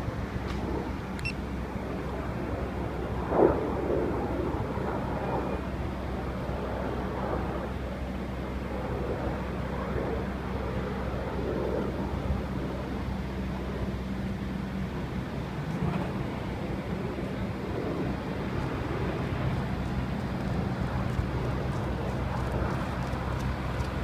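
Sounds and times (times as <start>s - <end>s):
distant jet engine rumble: 0.0s - 24.0s
low hum: 0.0s - 24.0s.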